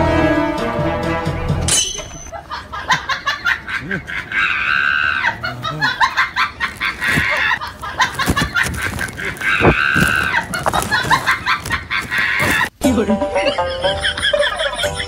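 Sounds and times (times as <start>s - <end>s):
long animal calls: 4.2s - 7.6s, 8.7s - 12.7s.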